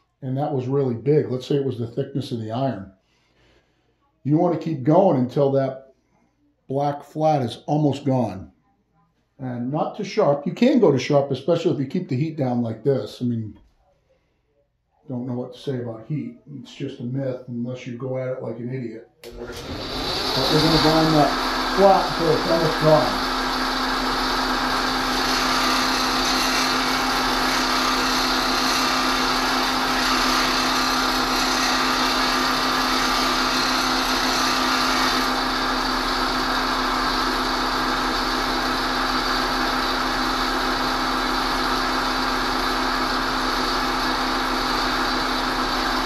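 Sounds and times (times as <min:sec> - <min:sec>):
bench grinder motor humming: 0:19.3 - 0:46.0
steel grinding against wheel: 0:19.6 - 0:35.9.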